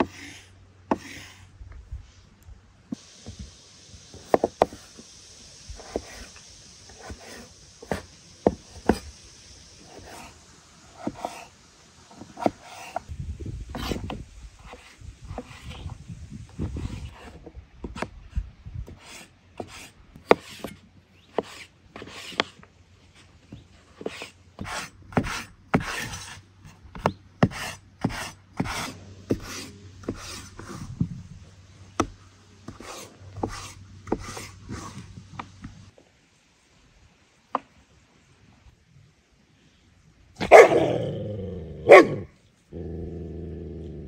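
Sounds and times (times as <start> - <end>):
scraping strokes with knocks: 0.0 - 2.2, 2.9 - 9.2, 9.8 - 36.0.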